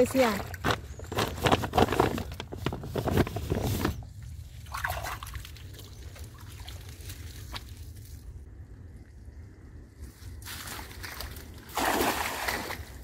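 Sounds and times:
plastic sack crinkling: 0:00.4 - 0:04.0.

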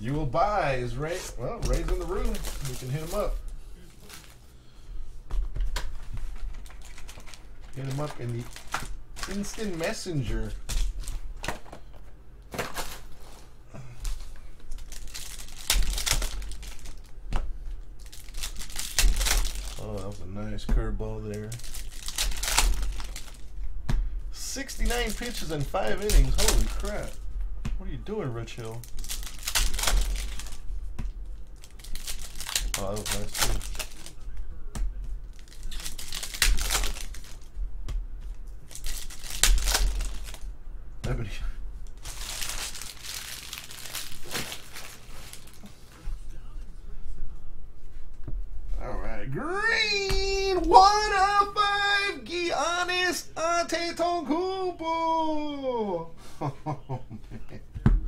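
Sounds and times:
foil wrapper crinkling and tearing: 0:00.9 - 0:04.4, 0:05.9 - 0:11.7, 0:14.0 - 0:17.2, 0:18.0 - 0:20.3, 0:21.2 - 0:23.5, 0:24.6 - 0:27.3, 0:28.6 - 0:30.7, 0:31.4 - 0:34.2, 0:35.3 - 0:37.5, 0:38.6 - 0:40.5, 0:41.9 - 0:45.7.

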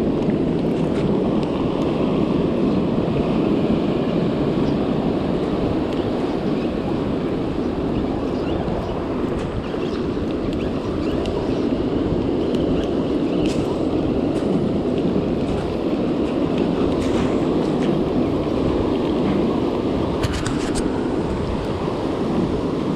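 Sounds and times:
waves breaking on pebble shore: 0:00.0 - 0:22.9
wind buffeting microphone: 0:00.0 - 0:22.9.

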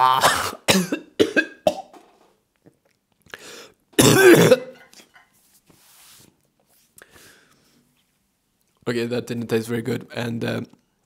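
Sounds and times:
man coughing: 0:00.0 - 0:01.9, 0:04.0 - 0:04.9.

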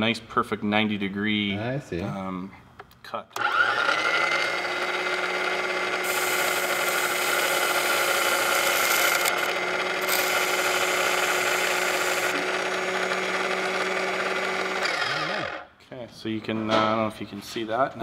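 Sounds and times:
metal grinding on wheel: 0:03.4 - 0:15.6
sharpener motor humming: 0:03.4 - 0:15.6.

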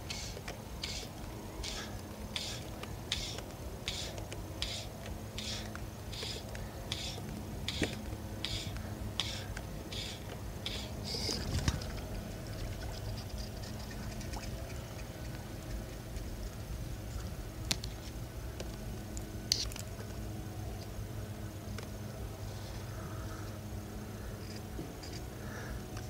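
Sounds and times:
fly line hissing when pulled: 0:00.0 - 0:11.3.

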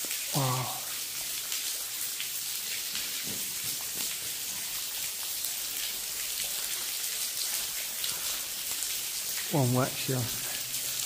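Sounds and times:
falling water hissing: 0:00.0 - 0:01.8.

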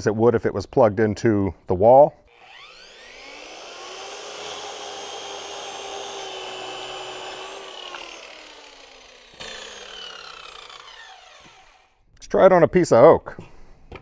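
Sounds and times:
circular saw cutting wood: 0:02.3 - 0:12.0
saw blade spinning down: 0:02.3 - 0:12.0.

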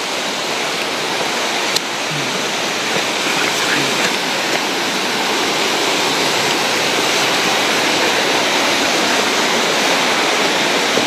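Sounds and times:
stream rapids rushing over rocks: 0:00.0 - 0:11.0.

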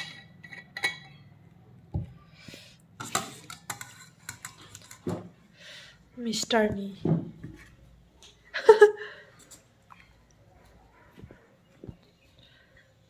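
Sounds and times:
ladle scraping metal pot: 0:03.0 - 0:05.2.

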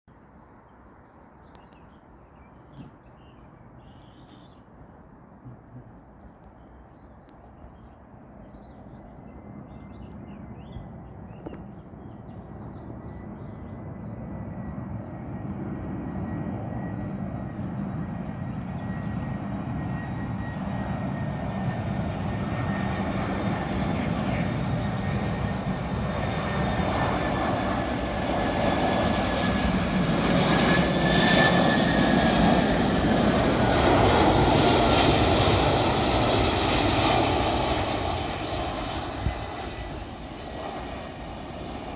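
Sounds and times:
jet engines roaring: 0:07.8 - 0:41.9
high jet whine: 0:08.4 - 0:41.9.

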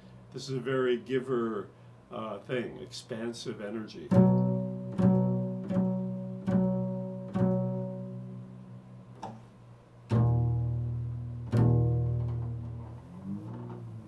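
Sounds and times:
double bass plucked: 0:04.1 - 0:14.0.

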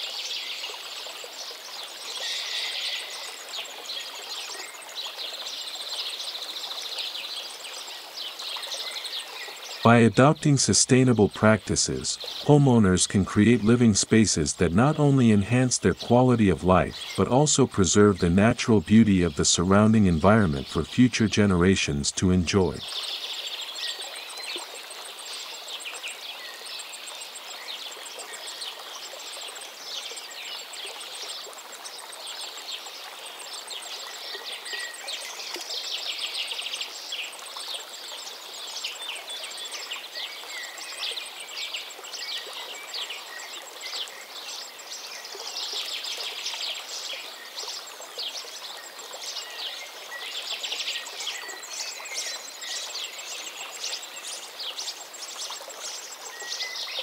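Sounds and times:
running water: 0:00.0 - 0:57.0
birds chirping and trilling: 0:16.9 - 0:17.2.

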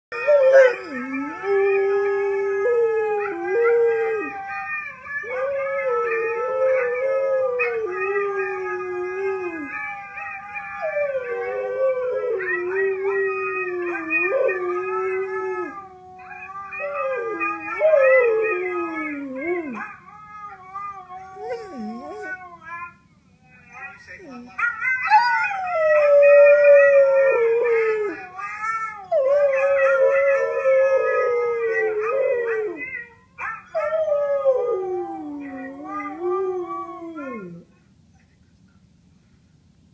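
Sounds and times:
dog howling: 0:00.1 - 0:22.9, 0:23.8 - 0:37.7
dogs howling from a laptop: 0:00.1 - 0:23.0, 0:23.6 - 0:37.6.

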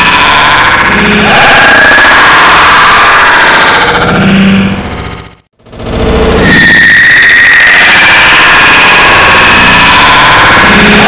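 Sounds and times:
distorted layered laughter: 0:08.5 - 0:11.0.

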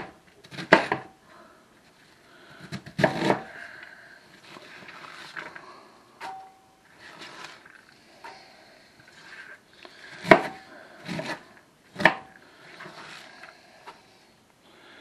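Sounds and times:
cabbage leaves rustling and scraping: 0:06.9 - 0:07.8.

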